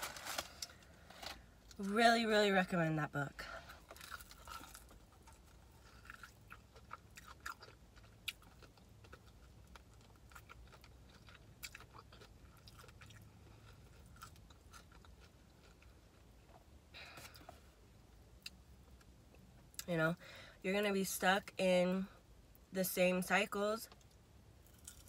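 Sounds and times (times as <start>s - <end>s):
low steady hum: 0.0s - 25.0s
person chewing crunchy food: 3.8s - 17.6s, 24.6s - 25.0s.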